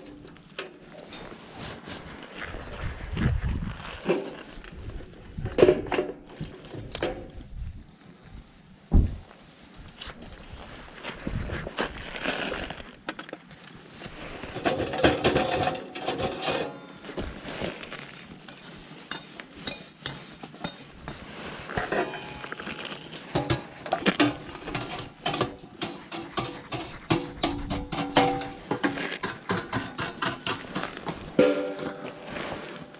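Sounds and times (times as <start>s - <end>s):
metal panels clinking and rattling: 23.3s - 32.2s.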